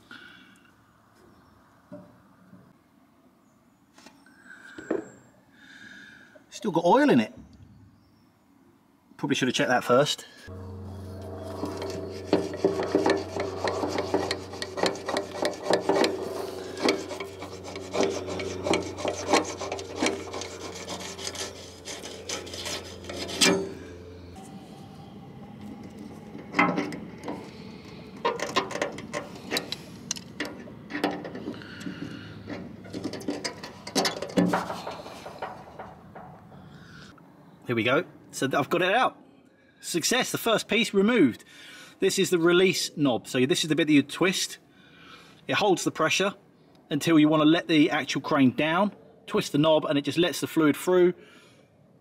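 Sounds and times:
steady low hum: 10.4s - 37.6s
rusted metal grating and clicking: 10.5s - 24.4s, 25.6s - 36.8s
sharp metal knocks: 10.5s - 24.4s.

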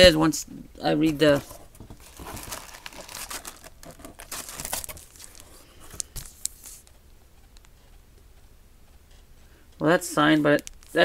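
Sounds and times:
packaging rustling and crinkling: 1.0s - 6.8s
sharp ticks: 6.4s - 11.0s.

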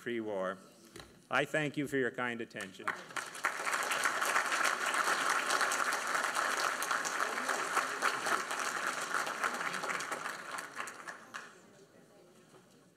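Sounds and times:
audience applauding: 2.9s - 11.6s.

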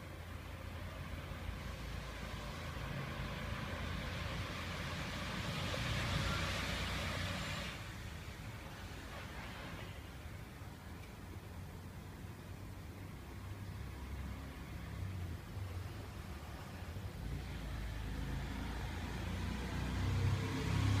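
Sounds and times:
vehicle passing by: 1.1s - 10.0s, 13.4s - 21.0s.

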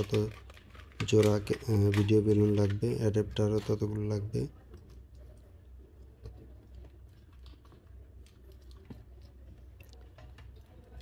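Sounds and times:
cable and plastic parts handled: 0.0s - 5.3s.

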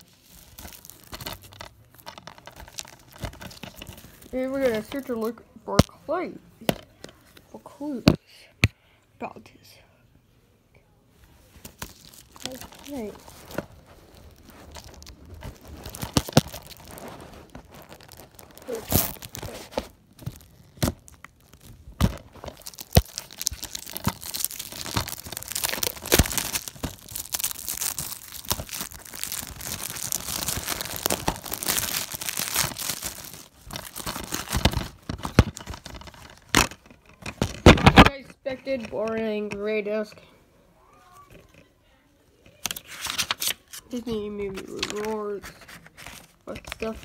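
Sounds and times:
wrapping tearing and rustling: 0.0s - 5.4s, 11.5s - 38.2s, 42.6s - 47.0s.

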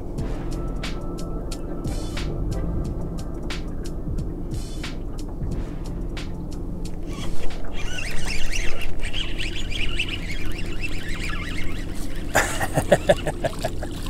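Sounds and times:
birds honking calls: 7.0s - 14.0s.

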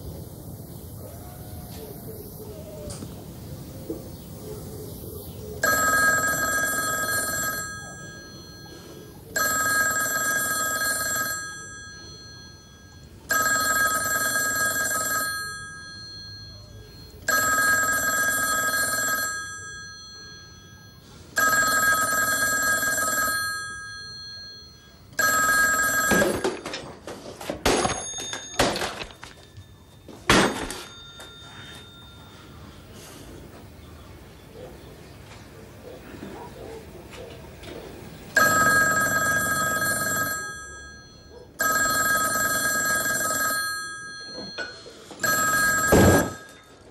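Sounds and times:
telephone ringing: 5.6s - 33.2s, 38.3s - 46.9s.

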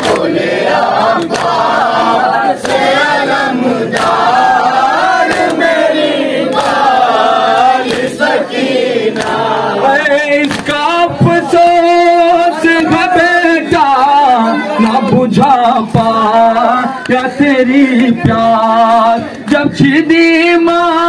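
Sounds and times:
hands slapping chests: 0.0s - 0.4s, 1.1s - 1.7s, 2.5s - 3.0s, 3.9s - 8.4s, 9.1s - 9.5s, 10.4s - 10.8s
men chanting in unison: 0.0s - 21.0s.

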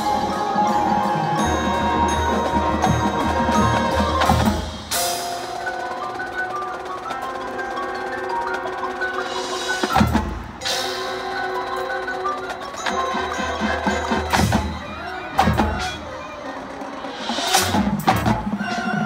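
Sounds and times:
wind and brass chords: 0.0s - 6.0s
mallet percussion: 0.0s - 19.0s.

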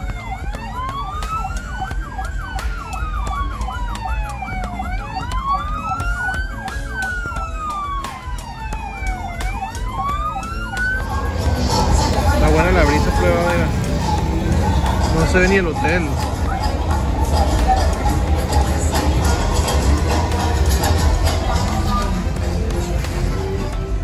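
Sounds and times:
siren yelp tone: 0.0s - 20.1s
police siren wailing: 0.0s - 23.3s
low engine rumble: 0.0s - 24.0s
music with a voice: 0.0s - 24.0s.

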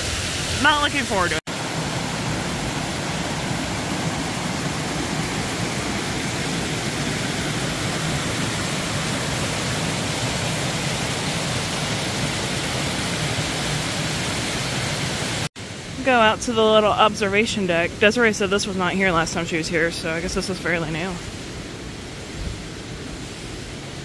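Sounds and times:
creek water rushing over rocks: 0.0s - 18.4s.

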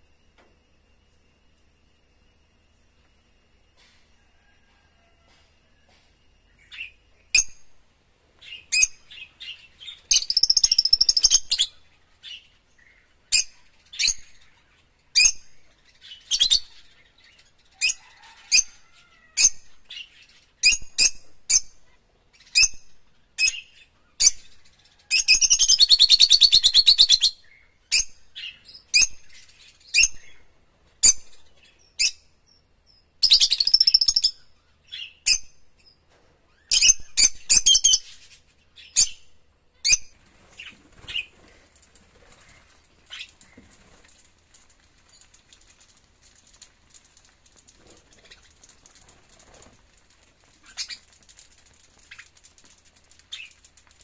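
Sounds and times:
lovebirds chirping: 8.4s - 18.2s
lovebirds rapid chattering: 8.5s - 15.0s, 39.9s - 54.0s.

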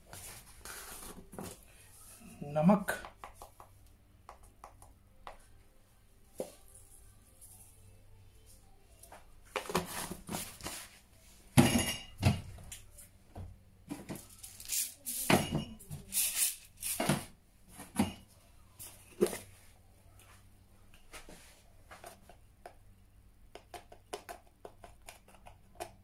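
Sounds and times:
spice containers knocking and clinking: 23.5s - 26.0s.

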